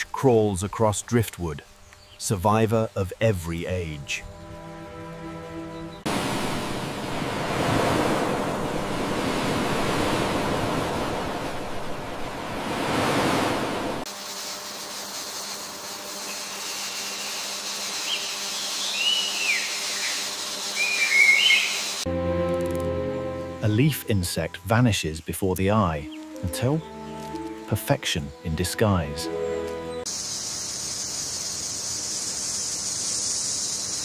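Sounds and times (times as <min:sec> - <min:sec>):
forest hiss: 0:00.0 - 0:34.0
sea surf washing in: 0:06.0 - 0:14.1
whistled bird chirps: 0:18.0 - 0:22.0.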